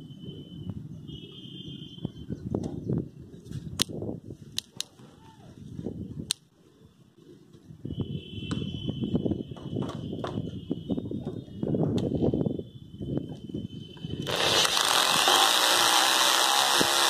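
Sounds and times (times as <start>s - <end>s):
drill clutch collar clicking: 14.3s - 17.0s.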